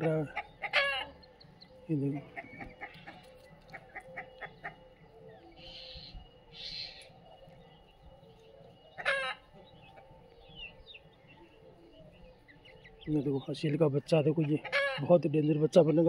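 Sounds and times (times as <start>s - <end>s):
chickens clucking: 0.0s - 16.0s
chicks chirping: 0.0s - 16.0s
chicken squawking harshly: 14.7s - 15.0s.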